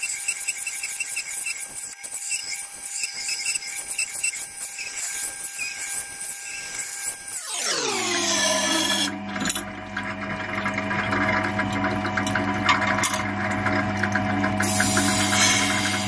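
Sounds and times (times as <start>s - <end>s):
sharpening wheel humming: 0.0s - 9.1s
knife scraping on grinding wheel: 0.0s - 9.6s.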